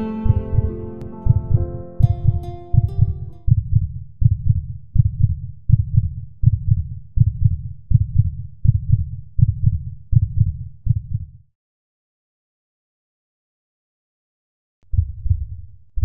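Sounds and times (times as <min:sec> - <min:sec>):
heartbeat double thump: 0:00.2 - 0:11.4, 0:14.9 - 0:16.0.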